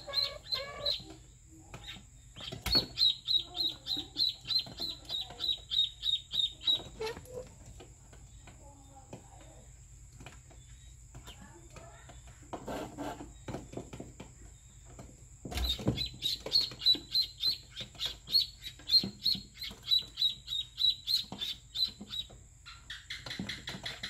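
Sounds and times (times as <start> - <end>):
chicks peeping: 0.0 - 7.5, 15.6 - 24.0.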